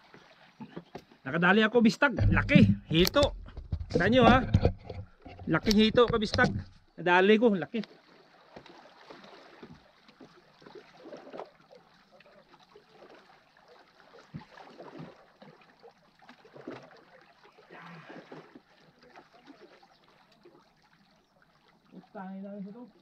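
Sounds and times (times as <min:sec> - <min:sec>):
small waves lapping on boulders: 0:00.0 - 0:23.0
small knocks: 0:02.2 - 0:06.8.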